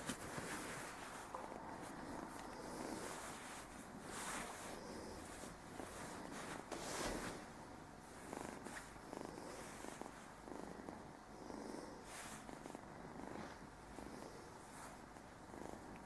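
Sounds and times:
kitten purring: 0.0 - 16.0.

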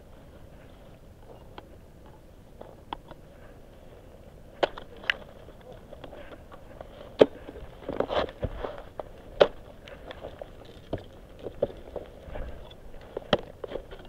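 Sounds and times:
ice axe and crampons biting ice: 7.1 - 12.1.

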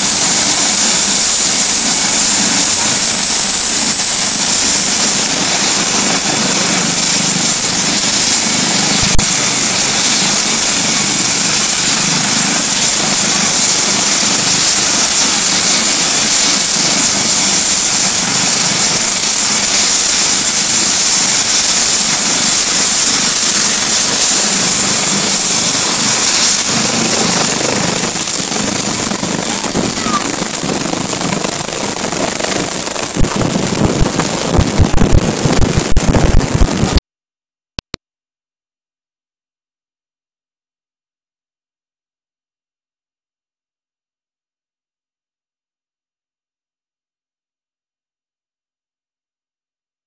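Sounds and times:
helicopter rotor noise: 0.0 - 37.0
helicopter turbine whine: 0.0 - 37.0
sharp click: 37.8 - 38.0.

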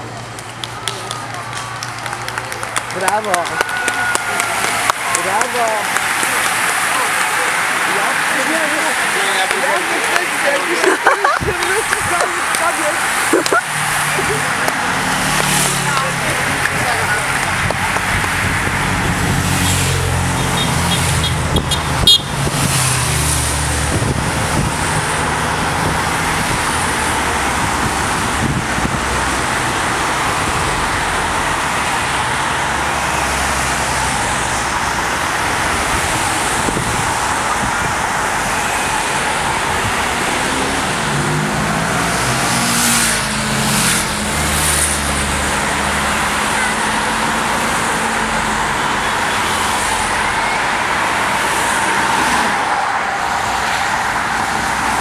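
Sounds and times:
cars driving past: 0.0 - 55.0
motorcycle passing: 11.4 - 21.6
car horn toot: 20.3 - 22.4, 46.4 - 47.0.

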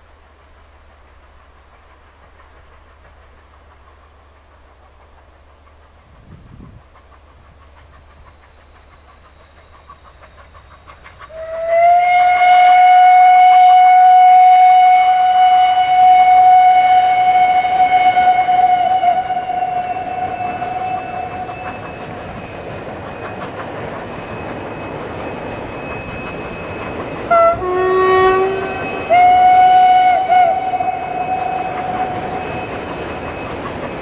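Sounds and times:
faint low train rumble: 0.0 - 34.0
steam locomotive whistle: 9.0 - 34.0.

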